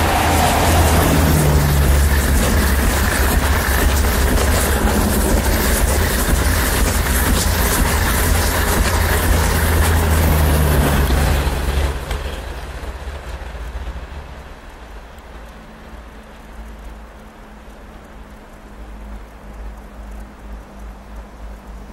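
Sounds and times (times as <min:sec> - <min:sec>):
low hum: 0:00.0 - 0:21.9
train wheels rushing on rail: 0:00.0 - 0:21.9.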